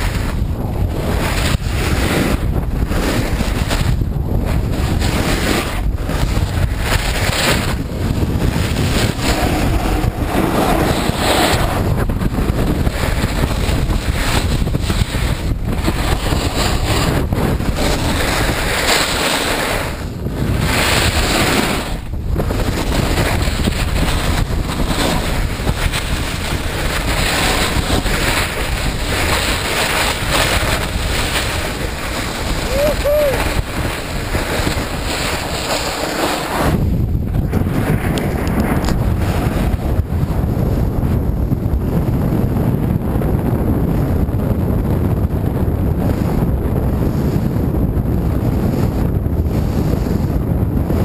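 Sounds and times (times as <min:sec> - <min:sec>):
wind rushing over microphone: 0:00.0 - 0:51.0
skis hissing on snow: 0:04.6 - 0:22.0, 0:22.6 - 0:36.8.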